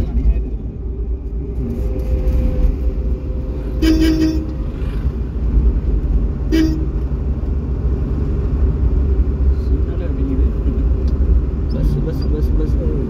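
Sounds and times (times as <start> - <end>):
vehicle rumbling on the move: 0.0 - 13.0
vehicle horn honking: 3.7 - 4.7, 6.5 - 7.0.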